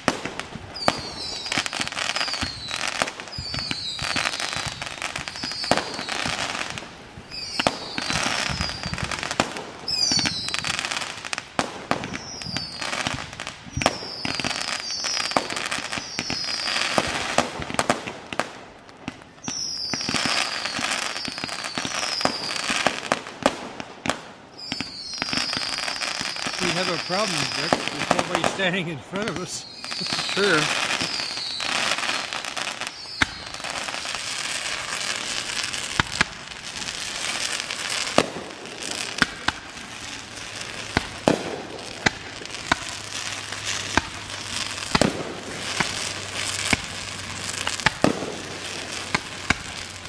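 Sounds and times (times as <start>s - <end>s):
fireworks whistles: 0.0s - 18.5s, 19.2s - 50.0s
fireworks bangs: 0.0s - 50.0s
fireworks crackling: 0.0s - 50.0s.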